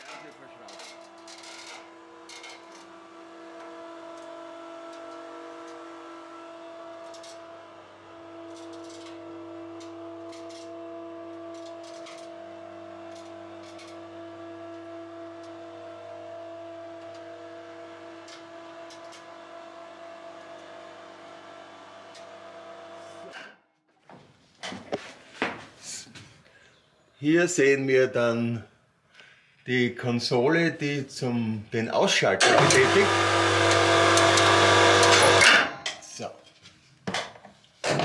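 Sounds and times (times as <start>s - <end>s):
winch motor humming: 0.0s - 23.5s, 32.4s - 35.7s.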